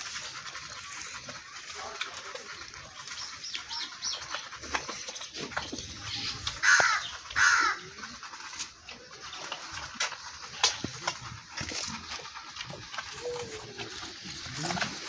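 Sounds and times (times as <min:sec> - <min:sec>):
bird harsh calls: 0:03.0 - 0:08.3.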